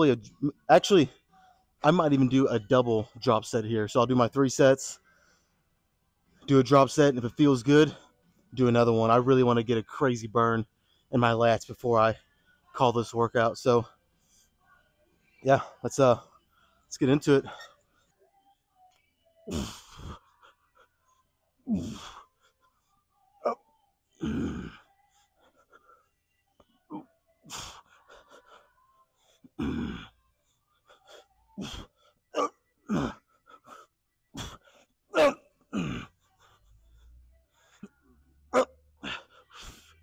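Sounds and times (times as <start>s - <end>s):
man grunting with effort: 21.7s - 22.2s, 24.2s - 24.8s, 32.4s - 33.2s.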